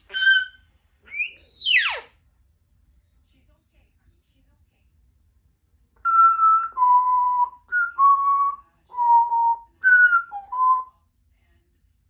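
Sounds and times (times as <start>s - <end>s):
parrot whistling a tune: 0.0s - 2.1s, 6.0s - 10.9s.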